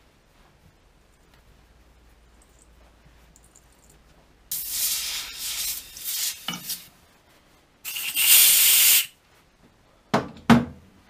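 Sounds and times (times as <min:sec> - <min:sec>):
compressed air blow gun hiss: 0:04.5 - 0:06.9, 0:07.9 - 0:09.2.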